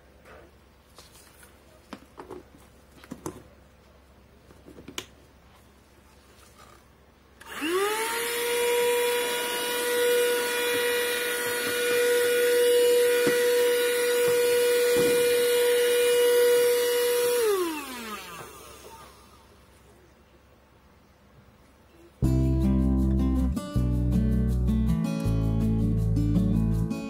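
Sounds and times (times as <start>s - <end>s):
handheld vacuum cleaner whine: 7.4s - 19.6s.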